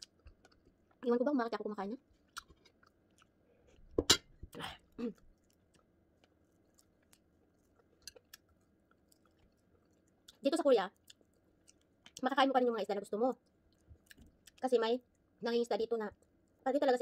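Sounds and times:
chewing and clicks: 0.0 - 1.1, 2.2 - 3.3, 5.2 - 12.3.

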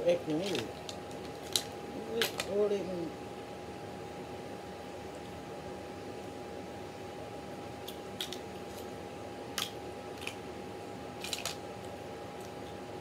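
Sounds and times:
faint hum: 0.0 - 13.0
crab shell cracking: 0.4 - 2.6, 7.8 - 8.9, 9.5 - 10.4, 11.2 - 12.7.

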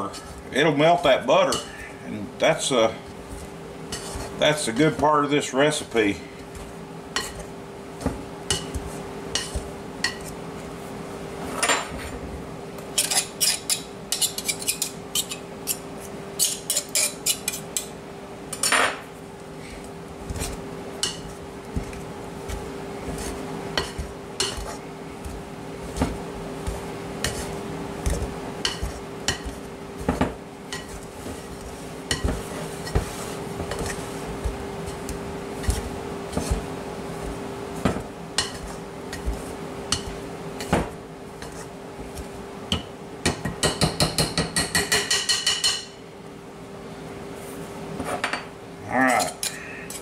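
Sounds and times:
steady low hum: 0.0 - 44.1
pastry blender scraping bowl: 2.5 - 10.4, 20.2 - 42.4.

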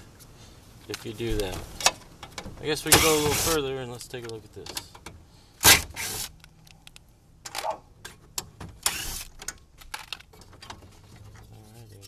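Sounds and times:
plastic parts clicking and knocking: 6.4 - 11.5.

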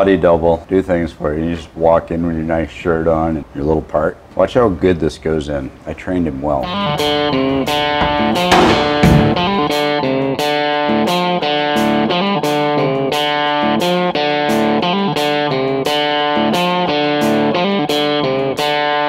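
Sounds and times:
guitar-led background music: 6.6 - 19.0.

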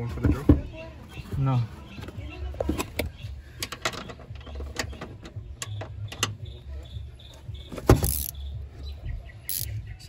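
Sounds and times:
wrench clicking on nut: 8.0 - 8.4, 9.5 - 9.7.

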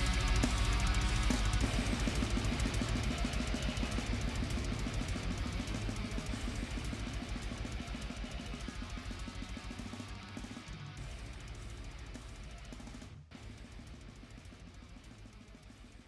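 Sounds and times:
busy drum kit: 0.0 - 16.0
guitar: 0.0 - 16.0.

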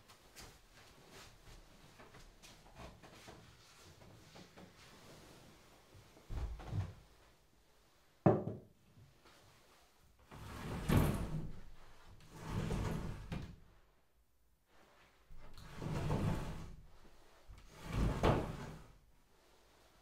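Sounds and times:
sliding door rumbling on track: 15.6 - 16.7, 17.7 - 18.8.

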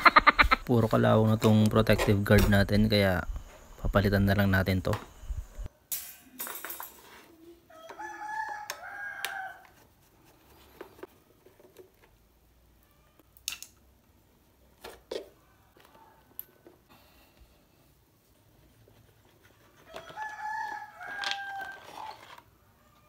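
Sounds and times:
rooster crowing: 7.7 - 9.8, 19.8 - 23.0.

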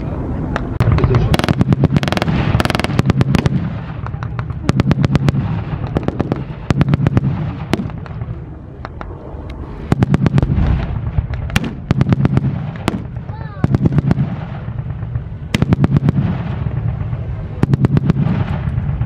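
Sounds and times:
single rifle shots: 9.9 - 18.8.

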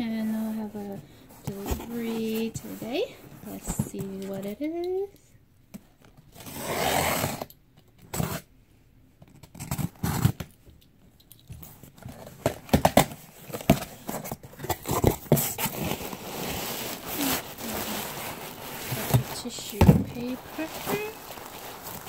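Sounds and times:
packing tape tearing: 9.3 - 10.5, 12.2 - 22.0.

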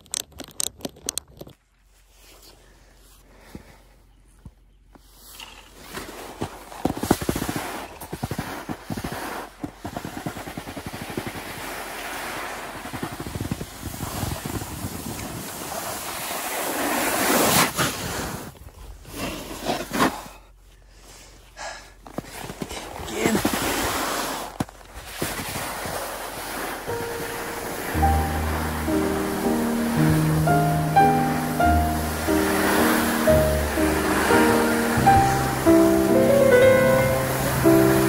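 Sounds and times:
snowboard scraping over snow: 5.8 - 20.3, 22.2 - 38.0
wind on microphone: 12.6 - 15.8.

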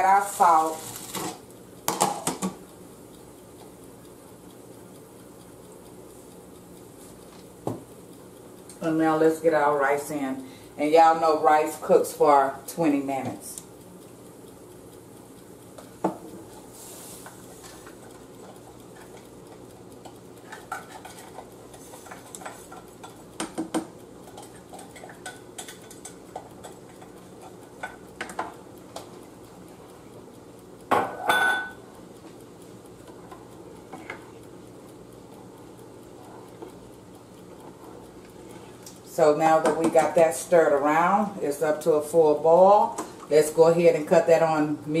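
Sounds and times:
boiling water: 0.0 - 45.0
spoon stirring in a saucepan: 16.8 - 29.2, 37.4 - 38.9.

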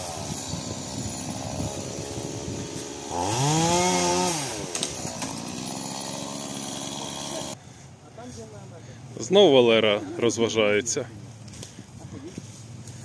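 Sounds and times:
chainsaw running and revving: 0.0 - 7.6.

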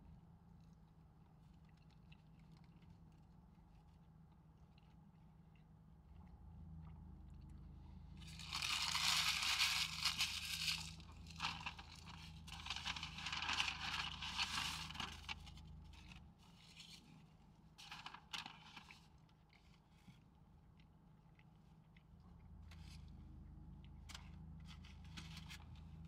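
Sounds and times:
paper wrapping crumpled: 8.2 - 17.1, 17.8 - 19.1
paper bag rustling: 8.3 - 16.2, 17.8 - 19.1.

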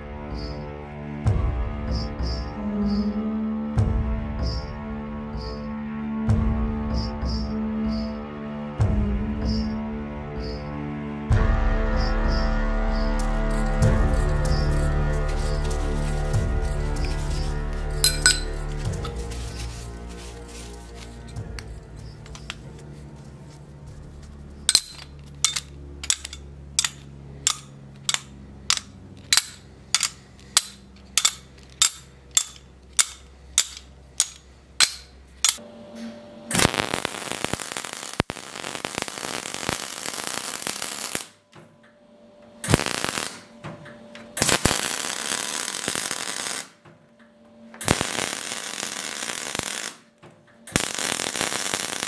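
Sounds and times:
arc welding crackling and hissing: 13.1 - 26.2, 36.6 - 41.4, 42.7 - 43.5, 44.4 - 46.8, 47.8 - 50.1, 50.7 - 52.0
regular sharp clicks: 42.6 - 43.5, 44.4 - 46.7, 47.8 - 50.0, 50.6 - 52.0.

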